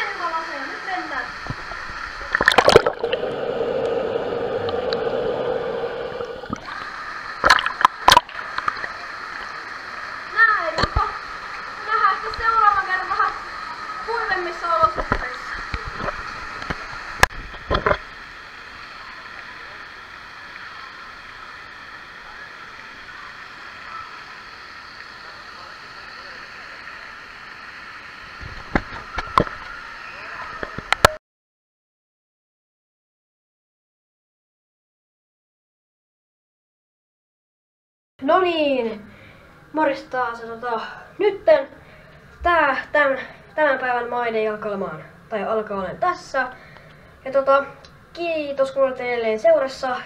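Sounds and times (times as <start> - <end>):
pool water splashing: 0.0 - 31.1
muffled underwater rumble and gurgle: 1.3 - 12.5.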